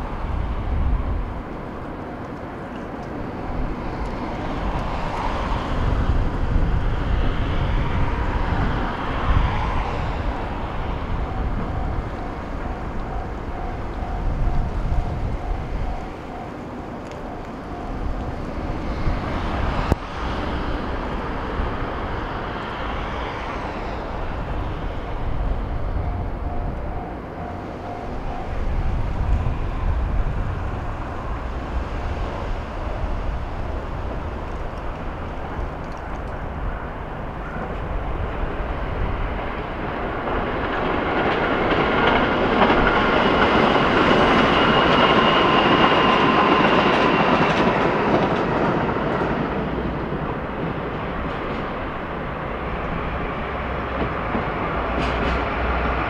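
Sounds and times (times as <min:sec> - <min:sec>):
diesel locomotive engine rumble: 0:00.0 - 0:56.0
level crossing bell dinging: 0:26.1 - 0:28.9.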